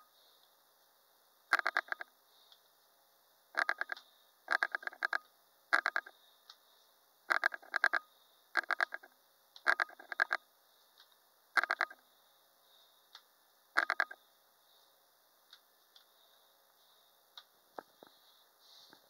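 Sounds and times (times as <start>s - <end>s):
mouse scroll wheel clicking: 1.5s - 2.1s, 3.6s - 5.2s, 5.8s - 6.1s, 7.3s - 8.0s, 8.6s - 10.4s, 11.6s - 12.0s, 13.8s - 14.2s.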